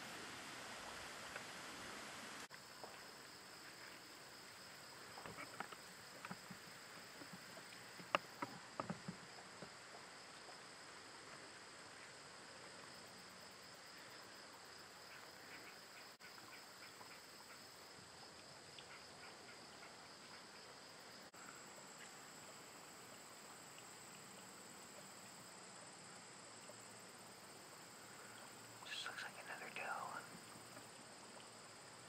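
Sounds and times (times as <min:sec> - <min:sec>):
high-pitched insect chorus: 0:11.8 - 0:32.0.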